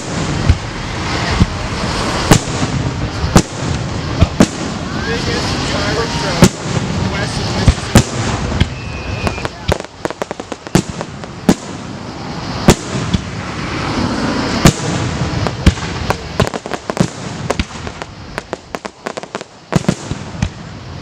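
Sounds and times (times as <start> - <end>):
firework booms: 0.0 - 21.0
firework pops and crackles: 0.0 - 21.0.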